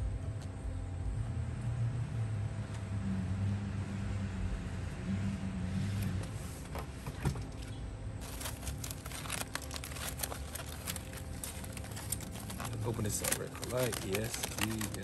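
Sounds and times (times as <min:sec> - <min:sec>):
steady low hum: 0:00.0 - 0:15.0
aluminium foil crinkling: 0:08.2 - 0:15.0.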